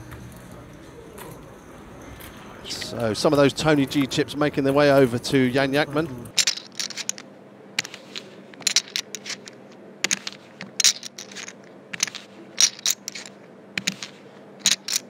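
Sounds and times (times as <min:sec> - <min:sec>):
low steady hum: 0:05.4 - 0:15.0
poker chips clicking: 0:06.4 - 0:07.2, 0:07.8 - 0:15.0.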